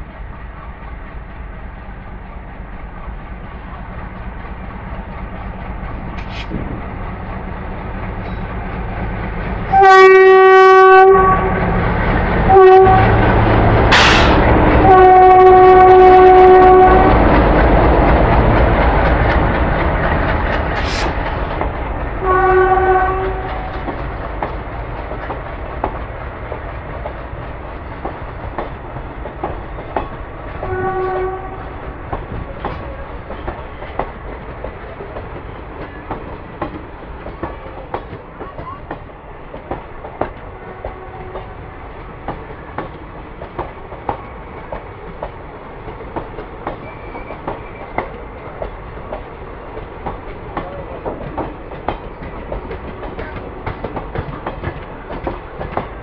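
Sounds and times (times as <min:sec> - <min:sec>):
train wheels clickety-clack: 0:00.0 - 0:56.0
locomotive horn blasts: 0:09.7 - 0:11.8, 0:12.5 - 0:13.2, 0:14.1 - 0:17.2, 0:22.2 - 0:23.8, 0:30.6 - 0:31.7, 0:40.6 - 0:41.6.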